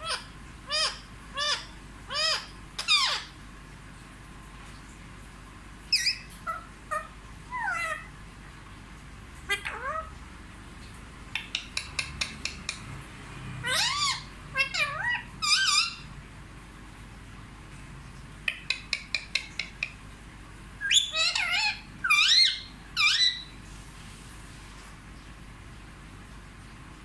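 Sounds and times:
parakeet clicking and calling: 0:00.0 - 0:03.4, 0:05.9 - 0:08.1, 0:09.3 - 0:10.2, 0:10.8 - 0:16.1, 0:18.4 - 0:20.1, 0:20.8 - 0:23.5.

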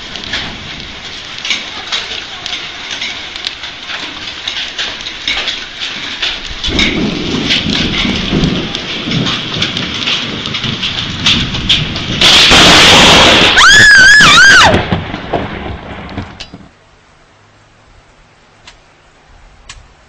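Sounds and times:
heavy rain: 0:00.0 - 0:20.0
loud thunder crack: 0:06.2 - 0:16.4.

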